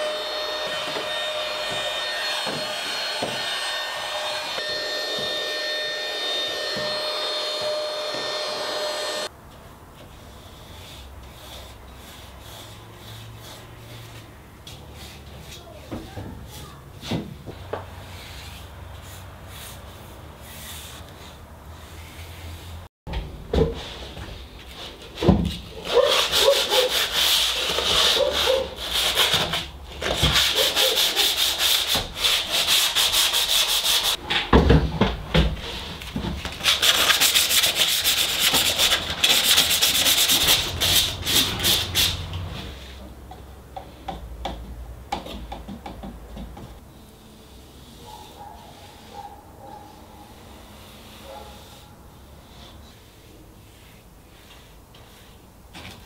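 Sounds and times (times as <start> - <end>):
sandpaper scratching on metal: 25.8 - 29.4, 30.2 - 34.2, 36.6 - 42.3.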